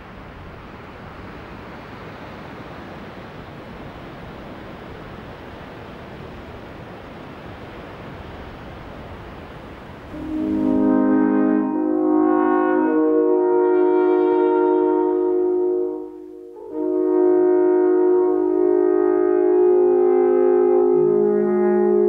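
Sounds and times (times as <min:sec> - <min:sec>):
steady rushing noise: 0:00.0 - 0:11.9
brass music with french horn: 0:10.1 - 0:22.0.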